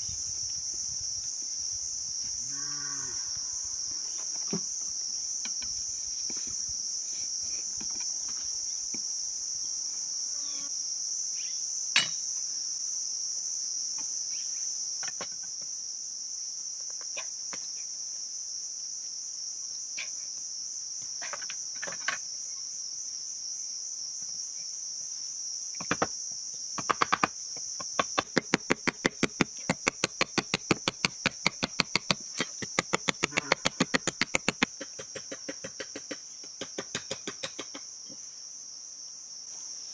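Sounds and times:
high-pitched insect chorus: 0.0 - 39.9
machete chopping bamboo: 26.8 - 37.8.

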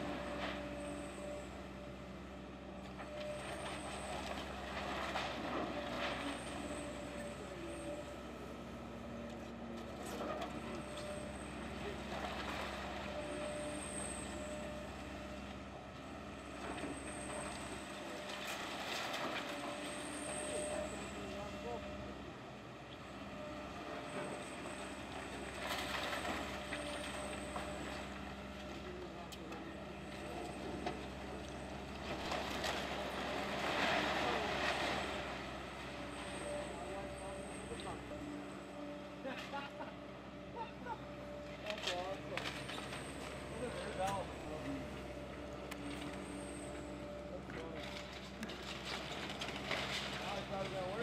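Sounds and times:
excavator diesel engine running: 0.0 - 51.0
falling debris crunching: 31.2 - 35.7, 47.7 - 51.0.

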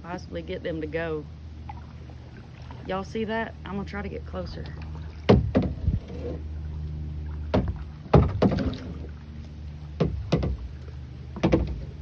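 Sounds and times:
low hum: 0.0 - 12.0
paddle dipping in water: 0.0 - 12.0
paddle knocking on kayak hull: 4.8 - 6.0, 7.4 - 9.1, 9.9 - 12.0.

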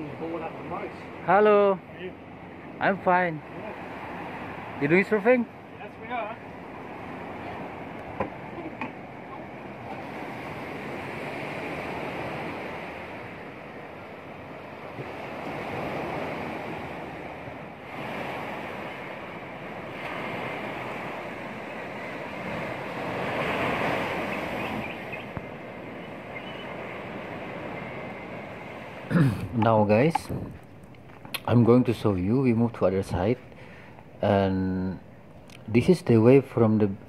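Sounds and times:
surf breaking on beach: 3.1 - 30.7.

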